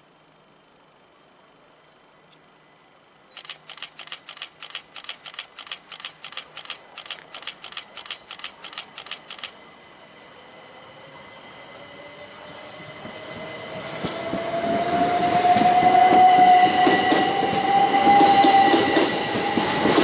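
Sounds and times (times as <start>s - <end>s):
sharp mechanical clicks: 3.3s - 9.6s.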